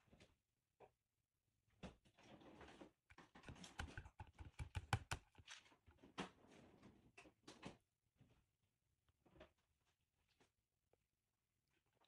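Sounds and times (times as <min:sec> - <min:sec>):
fingers tapping on a plate: 0:03.5 - 0:05.2.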